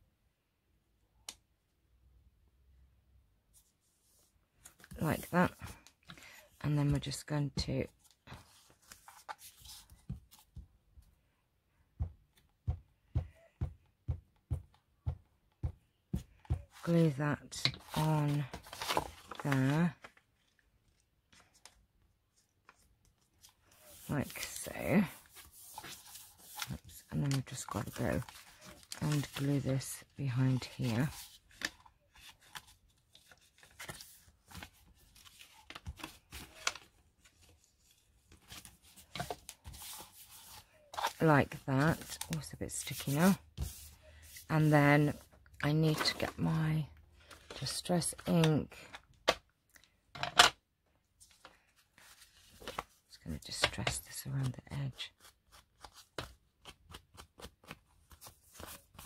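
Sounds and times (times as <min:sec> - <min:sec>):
paper rustling and scraping: 0:08.0 - 0:10.6, 0:17.7 - 0:20.2, 0:22.7 - 0:45.2.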